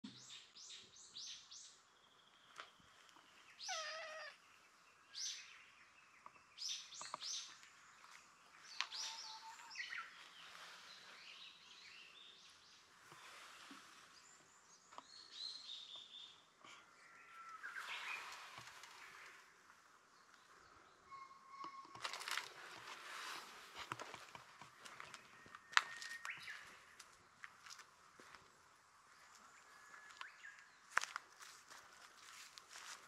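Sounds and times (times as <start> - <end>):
birds chirping: 0.0 - 32.1
cat meowing: 3.6 - 4.4.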